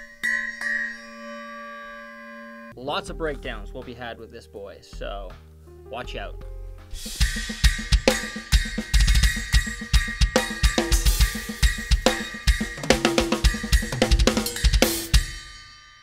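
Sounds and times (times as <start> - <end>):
bright bell cymbal ping: 0.0 - 2.8, 7.7 - 16.0
snare and cymbal strikes: 6.8 - 16.0.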